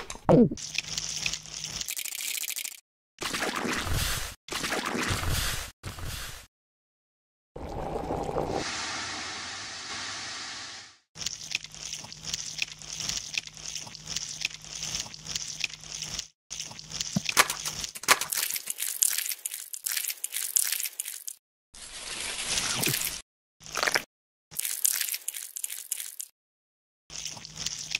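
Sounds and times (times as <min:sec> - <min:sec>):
soda can fizzing hiss: 0:08.4 - 0:11.0
crackling clicks and squishes: 0:11.2 - 0:21.4.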